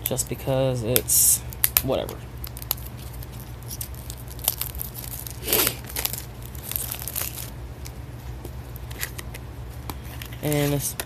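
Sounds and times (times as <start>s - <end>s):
toy package tearing: 2.4s - 7.5s
plastic crinkling and rustling: 2.4s - 8.0s.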